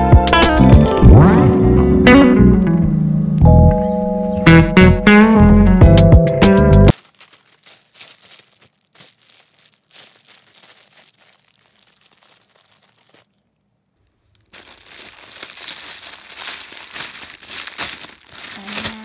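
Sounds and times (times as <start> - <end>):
plastic packaging crinkling: 6.9 - 19.0.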